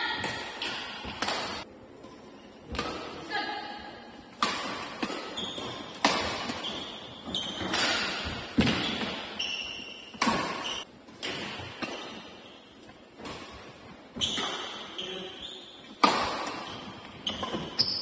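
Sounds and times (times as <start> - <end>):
racket hitting shuttlecock: 0.1 - 1.7, 2.7 - 3.2, 4.3 - 12.5, 15.8 - 18.0
shoes squeaking on court floor: 4.6 - 10.9, 11.7 - 18.0.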